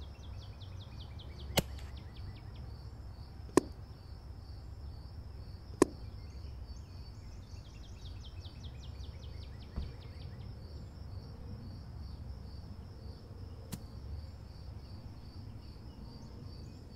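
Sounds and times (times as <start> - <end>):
insect chirping: 0.0 - 16.9
airgun shot: 1.6 - 1.9.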